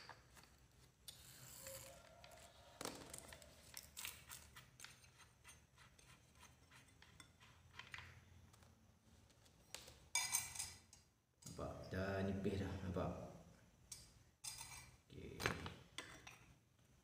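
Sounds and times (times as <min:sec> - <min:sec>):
small metal clicks and scrapes: 0:00.0 - 0:08.6.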